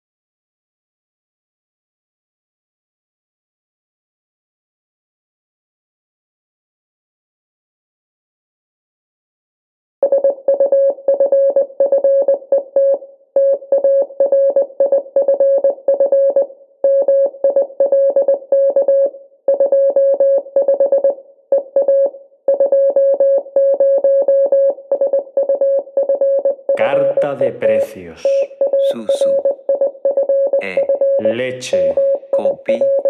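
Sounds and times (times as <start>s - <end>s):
repeated electronic keyboard note: 22.8s - 33.0s.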